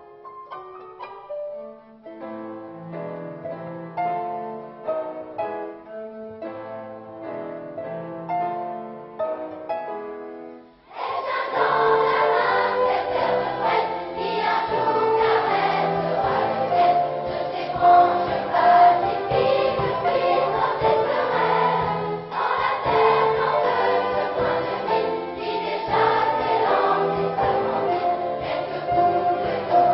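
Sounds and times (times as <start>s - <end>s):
children's choir singing: 10.9s - 29.9s.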